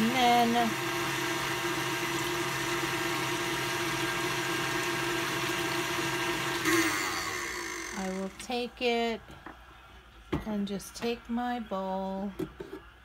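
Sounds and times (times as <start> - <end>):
stand mixer motor hum: 0.0 - 8.4.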